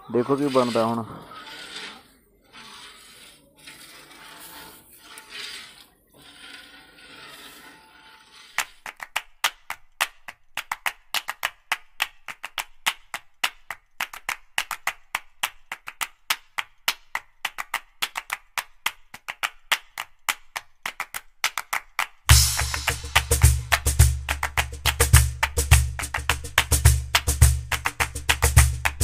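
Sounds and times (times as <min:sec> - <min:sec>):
heavy bass beat: 0:22.3 - 0:29.0.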